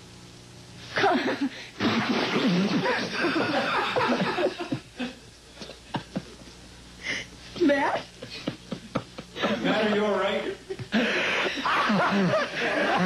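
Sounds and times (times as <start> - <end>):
people laughing: 1.0 - 6.4, 8.2 - 13.0.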